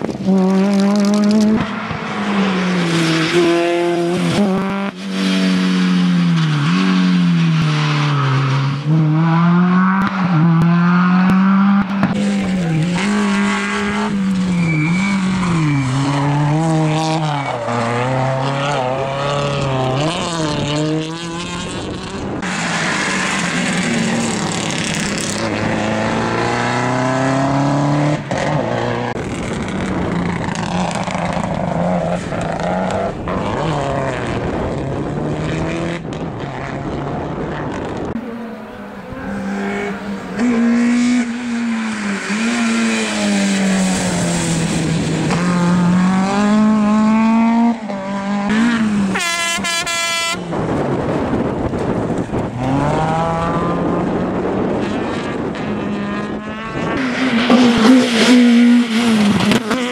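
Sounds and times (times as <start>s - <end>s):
rally car engines revving: 0.0s - 59.9s.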